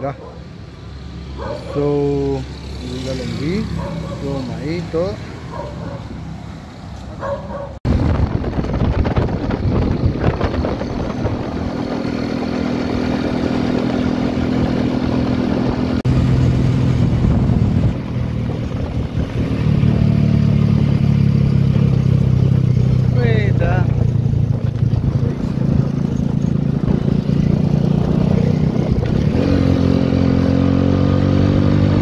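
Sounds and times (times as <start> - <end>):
road noise: 0.0 - 32.0
wind rushing: 7.8 - 20.4, 23.8 - 32.0.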